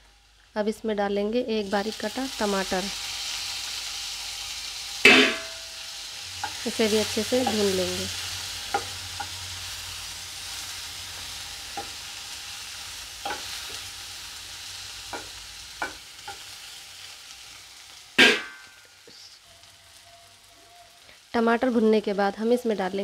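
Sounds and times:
onion sizzling in a pan: 0.0 - 23.0
loud knock: 5.1 - 5.6
spatula scraping and tapping pan: 8.7 - 9.4, 13.2 - 13.8.

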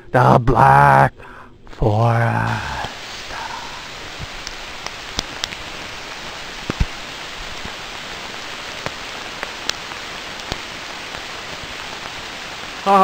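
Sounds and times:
steady rain hiss: 0.0 - 13.0.

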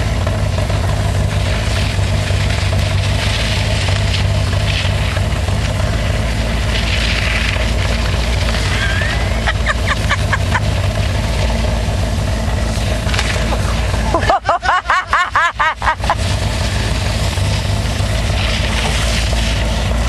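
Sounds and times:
car engine running: 0.0 - 20.0
road and wind noise: 0.0 - 20.0.

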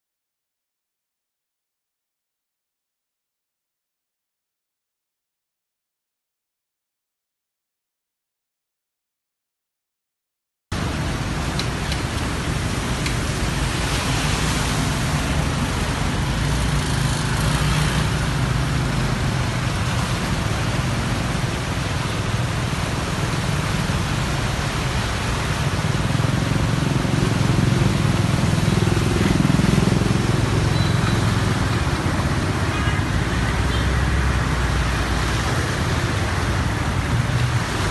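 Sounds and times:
vehicle engines running: 10.8 - 37.9
water splashing: 10.8 - 37.9.

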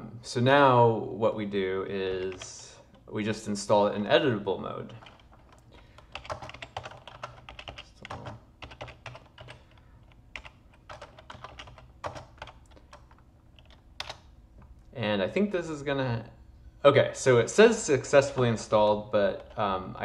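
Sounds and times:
keyboard typing clicks: 5.0 - 14.3.

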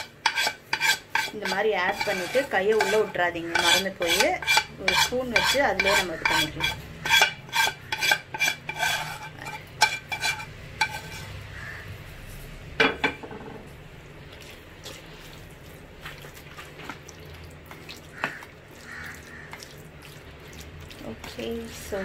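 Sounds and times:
spoon stirring thick marinade: 0.0 - 11.4, 14.2 - 22.0
spoon scraping a pan: 0.0 - 12.3.

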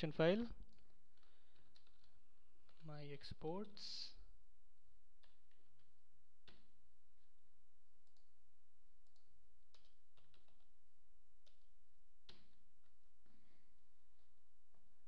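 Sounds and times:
keyboard keystrokes: 9.0 - 10.7.

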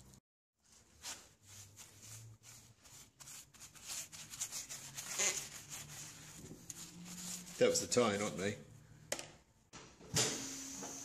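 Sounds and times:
tyre rubber rubbing and scraping: 0.6 - 8.3.

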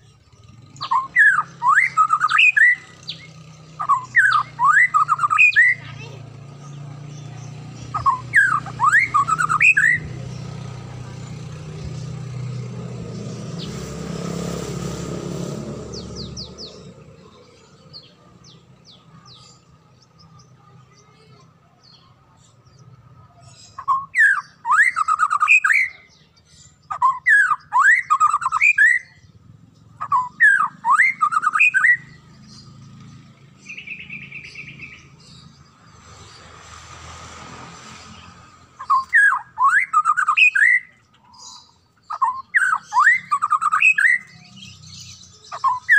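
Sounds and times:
bird singing whistled phrases: 0.8 - 6.0, 7.9 - 10.6, 23.6 - 29.3, 30.0 - 32.2, 33.6 - 35.2, 38.8 - 45.9.

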